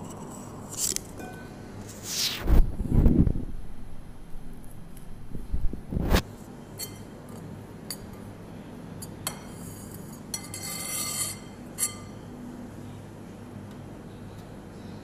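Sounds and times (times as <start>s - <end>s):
metal spoon scraping glass bowl: 9.5s - 12.1s.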